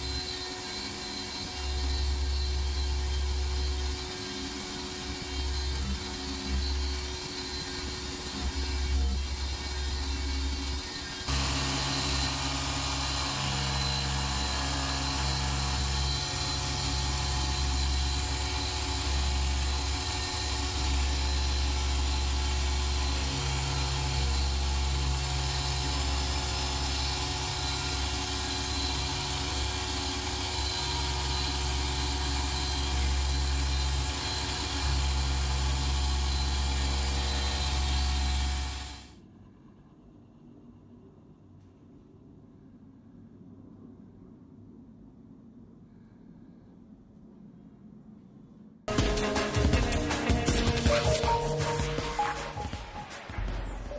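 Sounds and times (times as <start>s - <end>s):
milling machine cutting metal: 0.0s - 39.1s.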